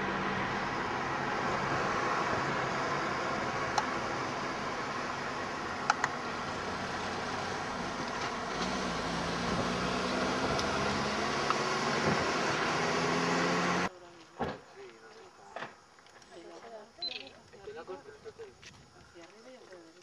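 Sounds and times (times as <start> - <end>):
low engine hum: 0.0 - 13.9
car road noise: 0.0 - 14.6.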